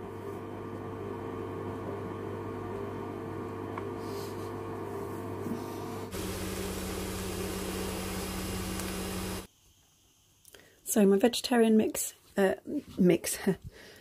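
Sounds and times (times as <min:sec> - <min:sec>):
kitchen appliance hum and fan: 0:00.0 - 0:09.5
extractor fan hiss: 0:05.4 - 0:09.8.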